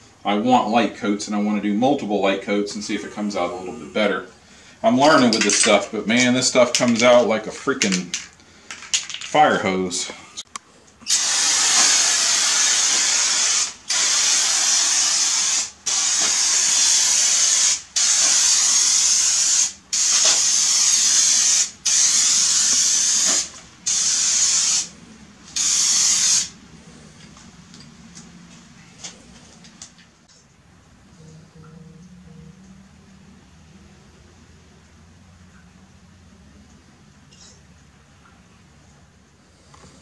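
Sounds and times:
aerosol spray can hissing: 11.1s - 24.9s, 25.5s - 26.6s.

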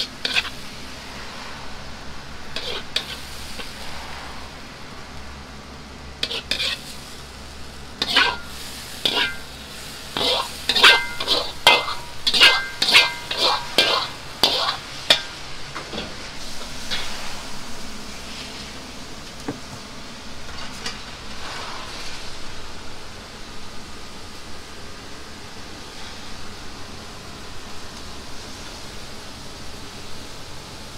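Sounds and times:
food sizzling: 0.0s - 30.9s
metal ladle clanking on a wok: 8.0s - 16.2s.

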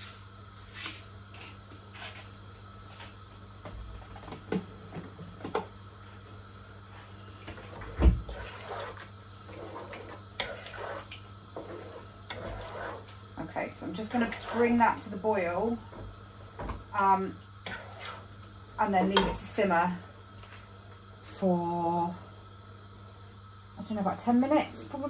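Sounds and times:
low steady hum: 0.0s - 25.0s
wooden spoon stirring in pot: 7.4s - 19.6s.

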